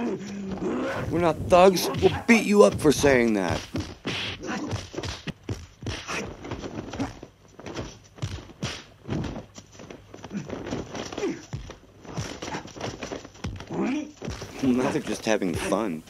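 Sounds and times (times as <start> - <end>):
punch and kick hits: 1.5 - 9.4, 10.3 - 14.9.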